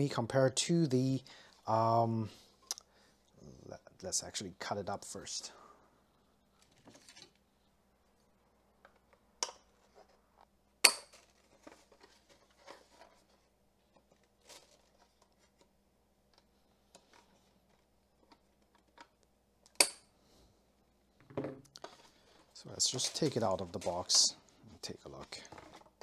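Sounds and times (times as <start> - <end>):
card rustling: 11.1 - 15.8, 21.8 - 26.0.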